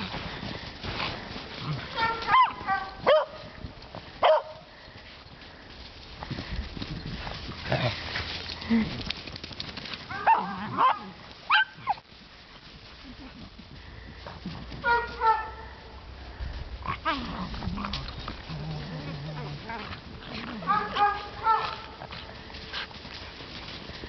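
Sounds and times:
dogs barking: 0:01.8 - 0:03.5, 0:04.2 - 0:04.7, 0:10.1 - 0:12.0, 0:14.8 - 0:15.8, 0:20.3 - 0:22.3.

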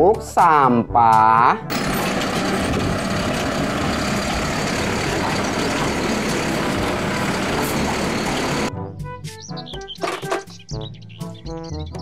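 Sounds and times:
music: 0:00.0 - 0:01.8, 0:07.3 - 0:12.0
garbage truck engine running: 0:01.7 - 0:08.7
side-loader arm tipping cart: 0:01.7 - 0:08.7.

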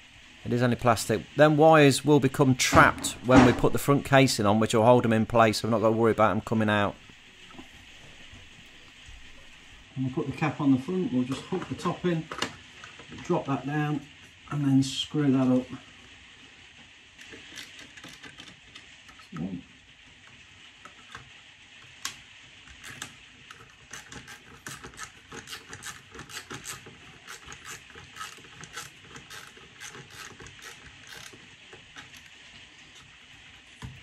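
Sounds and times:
screwdriver clicks and ticks: 0:22.8 - 0:32.3.

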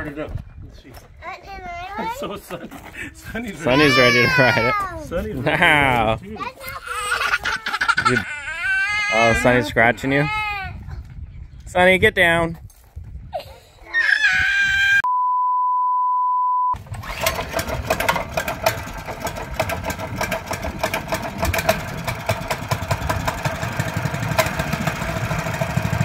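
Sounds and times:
child yelling: 0:03.6 - 0:05.1, 0:06.4 - 0:07.5, 0:08.2 - 0:10.8, 0:13.8 - 0:15.0
steady beep tone: 0:15.1 - 0:16.8
small gas engine idling: 0:16.8 - 0:26.0.

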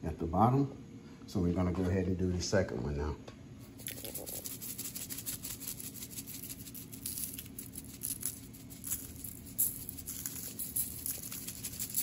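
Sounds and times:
seasoning granules pattering on meat: 0:03.8 - 0:12.0.

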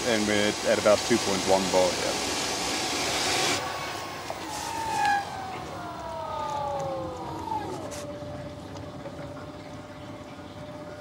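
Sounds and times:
pump motor whining: 0:02.6 - 0:11.0.

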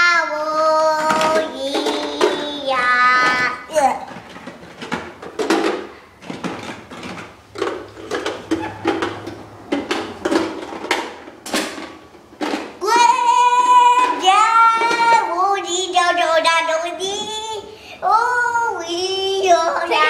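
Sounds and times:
child singing: 0:00.0 - 0:03.9, 0:12.8 - 0:20.0
rustles and knocks: 0:03.2 - 0:15.4.

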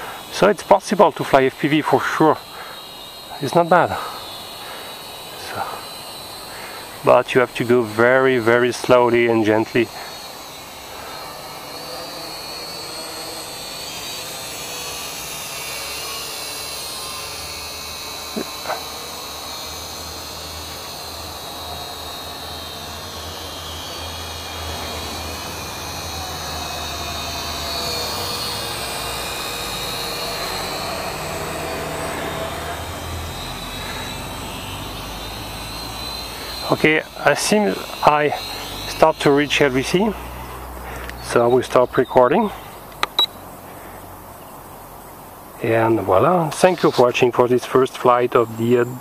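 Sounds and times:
quadcopter propellers whining: 0:00.0 - 0:49.0
short clicks: 0:42.9 - 0:43.4.

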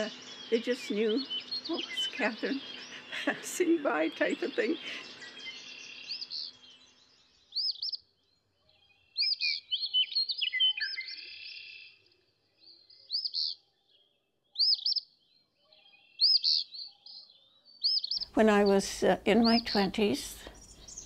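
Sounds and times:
bird lower chirps: 0:04.3 - 0:18.4, 0:20.4 - 0:21.0.

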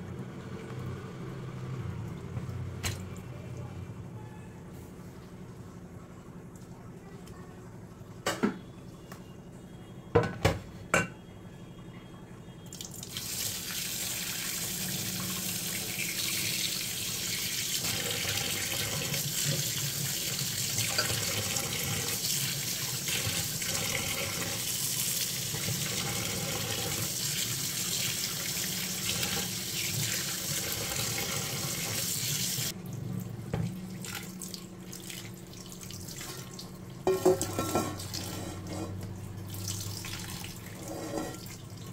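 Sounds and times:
tap water splashing in sink: 0:02.3 - 0:03.2, 0:33.5 - 0:38.2.

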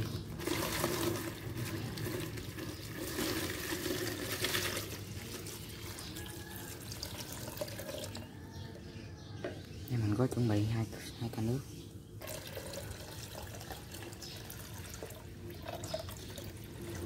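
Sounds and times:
water pouring into plastic bottle: 0:00.0 - 0:08.3, 0:12.2 - 0:17.0.

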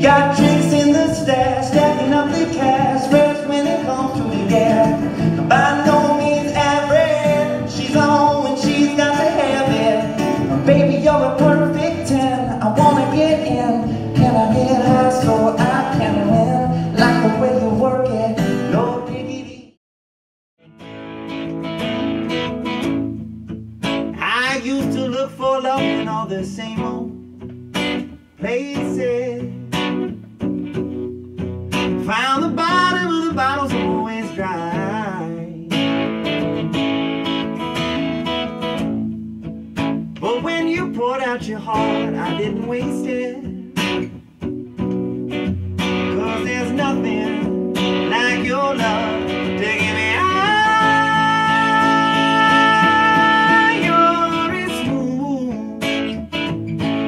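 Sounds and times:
strummed acoustic guitar: 0:00.0 - 0:19.7, 0:20.6 - 0:57.0
man singing: 0:00.0 - 0:19.8, 0:24.1 - 0:27.2, 0:28.4 - 0:29.6, 0:32.0 - 0:36.0, 0:40.2 - 0:44.1, 0:45.9 - 0:56.2.

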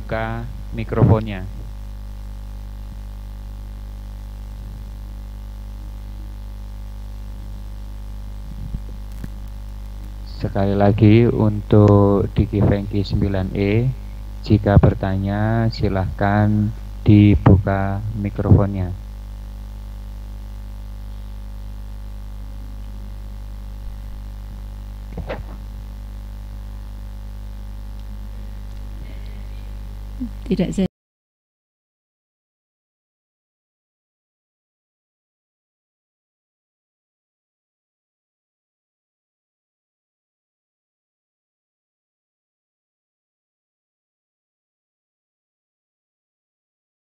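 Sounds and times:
electrical mains hum: 0:00.0 - 0:30.9
faint static hiss: 0:00.0 - 0:30.9.

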